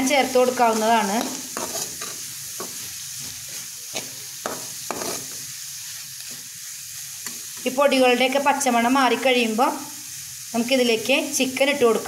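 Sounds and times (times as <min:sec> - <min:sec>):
vegetables sizzling in a pan: 0:00.0 - 0:12.0
spatula scraping and tapping pan: 0:00.2 - 0:05.5, 0:07.2 - 0:07.7.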